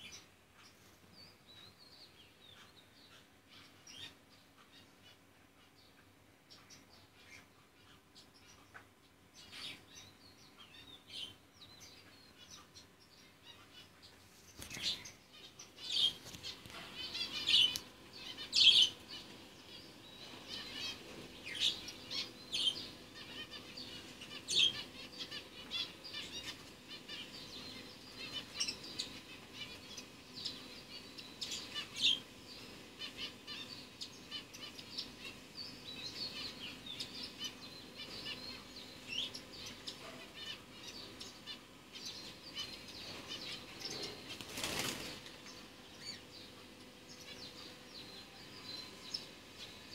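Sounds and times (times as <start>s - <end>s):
faint steady hum: 0.0s - 49.9s
small birds chirping: 0.0s - 49.9s
wings fluttering: 14.2s - 15.1s, 15.8s - 19.4s, 43.0s - 45.6s.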